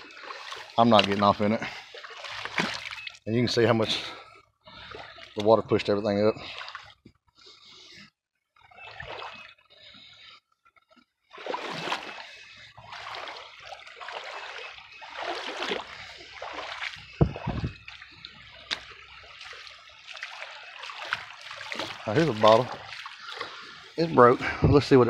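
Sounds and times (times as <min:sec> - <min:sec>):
creek water splashing over rocks: 0:00.0 - 0:04.0, 0:11.3 - 0:25.0
low thump: 0:17.2 - 0:17.8.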